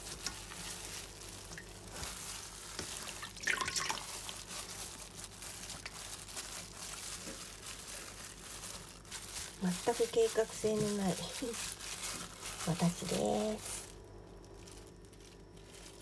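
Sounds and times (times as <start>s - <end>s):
plastic glove crinkles: 0.0s - 16.0s
wet fabric squelching in liquid: 0.0s - 16.0s
small drips: 1.4s - 1.8s, 2.8s - 4.6s.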